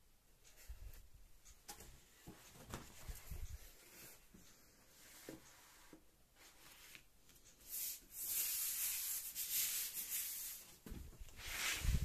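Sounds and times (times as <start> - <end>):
paper sliding on wooden table: 11.4 - 12.0.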